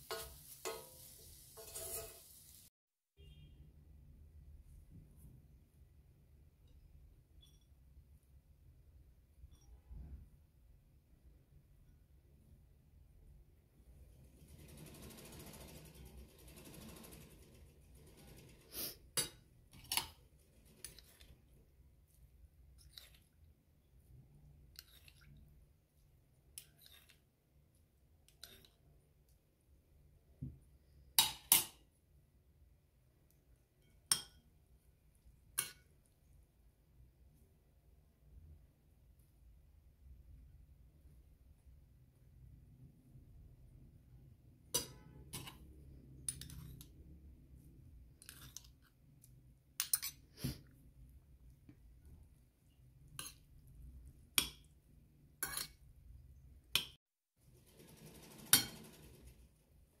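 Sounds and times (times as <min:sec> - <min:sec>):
metal spoon clinking on ceramic plate: 0:49.8 - 0:50.2, 0:55.4 - 0:55.8
metal spoon clinking on plate: 0:55.4 - 0:55.8.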